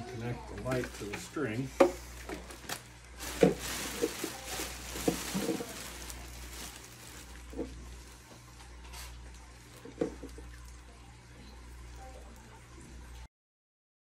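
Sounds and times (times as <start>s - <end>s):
plastic bag crinkling: 0.6s - 1.6s, 2.2s - 10.8s.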